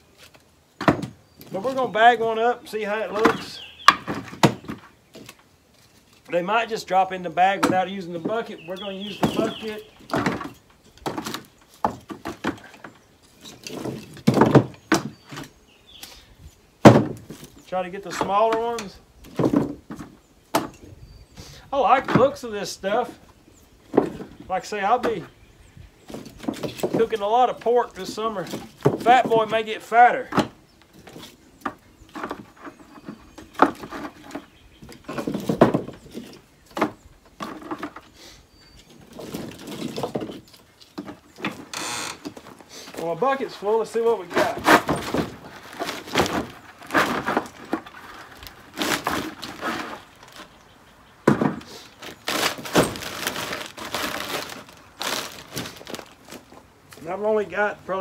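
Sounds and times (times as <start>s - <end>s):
wood chunks dropped into plastic bucket: 3.1s - 5.4s, 7.4s - 12.9s, 13.5s - 15.5s, 16.8s - 17.5s, 18.1s - 20.8s, 26.1s - 32.5s, 33.5s - 38.0s, 39.1s - 40.4s, 41.0s - 50.5s, 51.2s - 57.0s.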